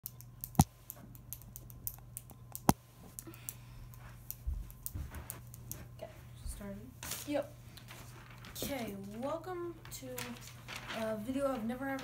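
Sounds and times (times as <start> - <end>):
footsteps thudding: 4.4 - 5.4.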